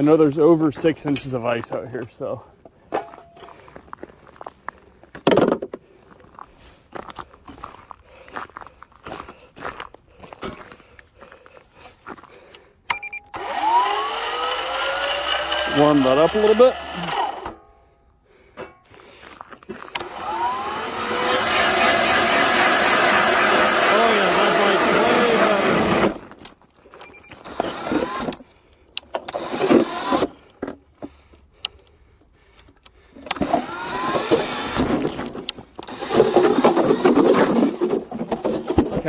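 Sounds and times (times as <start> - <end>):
ice auger motor whining: 13.3 - 17.6, 19.9 - 26.3, 27.1 - 28.4, 29.2 - 30.4, 33.2 - 38.8.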